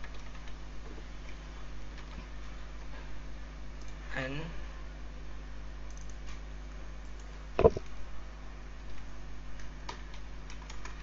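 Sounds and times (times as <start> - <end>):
low electrical hum: 0.0 - 11.0
computer mouse clicks: 5.9 - 6.2
knock: 7.6 - 7.8.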